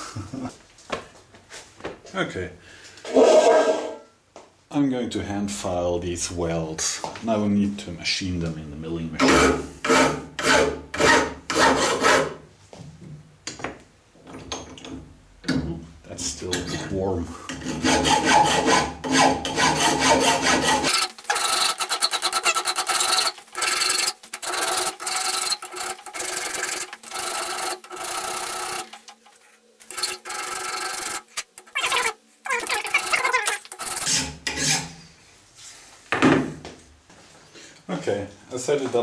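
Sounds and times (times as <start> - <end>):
hand file scraping metal: 9.2 - 12.4, 16.6 - 35.0.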